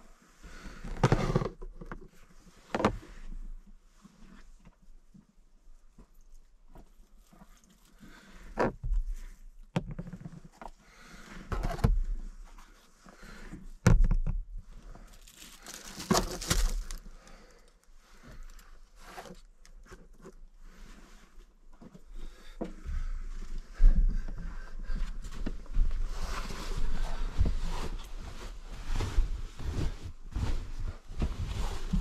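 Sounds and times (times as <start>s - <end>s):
plastic bag rustling: 15.0s - 17.8s.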